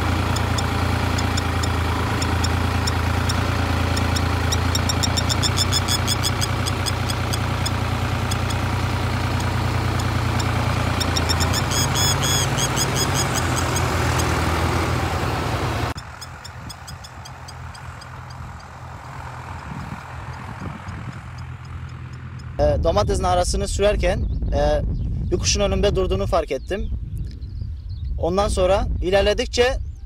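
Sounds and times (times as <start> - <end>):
bird alarm calls: 0.0 - 14.7, 16.0 - 20.0
tractor engine running: 0.0 - 23.6.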